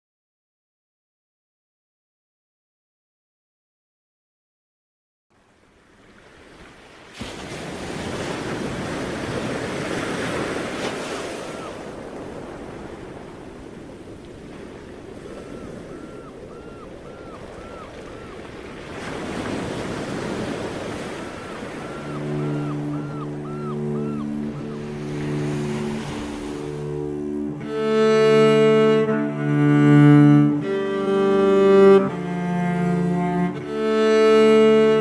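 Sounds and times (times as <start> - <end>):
sea waves washing: 5.8 - 35.0
low sustained string notes: 21.8 - 35.0.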